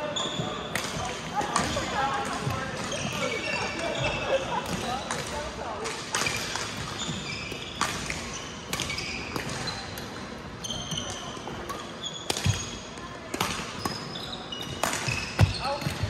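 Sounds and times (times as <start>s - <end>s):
sneakers squeaking on court: 0.0s - 5.5s, 6.2s - 16.0s
rackets hitting shuttlecock: 4.6s - 16.0s.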